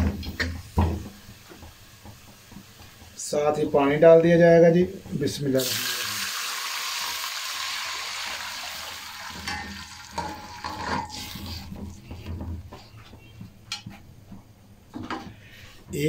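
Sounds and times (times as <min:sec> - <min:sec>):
water sizzling in hot fat: 0:00.0 - 0:12.6
metal ladle scraping a pot: 0:09.3 - 0:12.9.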